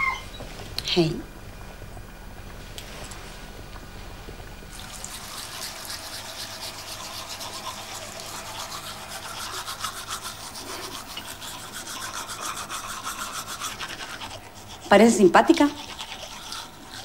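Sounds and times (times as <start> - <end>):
rapid rhythmic scrubbing: 4.8 - 17.0.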